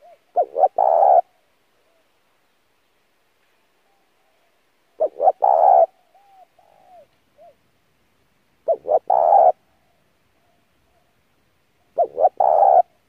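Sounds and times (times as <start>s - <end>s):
dove cooing: 0.0s - 2.1s, 3.9s - 7.6s, 8.6s - 11.2s, 11.8s - 13.0s.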